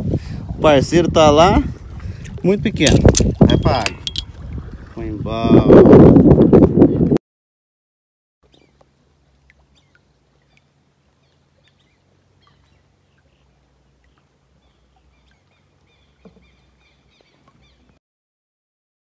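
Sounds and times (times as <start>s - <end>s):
soft knock: 16.2s - 16.5s.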